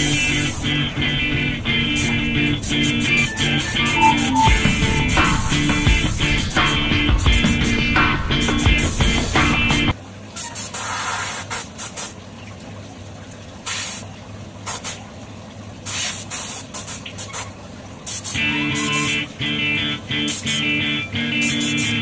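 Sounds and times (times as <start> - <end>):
spray gun hissing bursts: 0.0 - 0.8, 2.0 - 7.8, 8.4 - 9.8, 13.7 - 14.0, 14.7 - 15.0, 15.9 - 17.5, 18.1 - 18.4, 20.3 - 20.7, 21.4 - 22.0
music: 0.0 - 10.0, 18.4 - 22.0
steady low hum: 0.0 - 10.0.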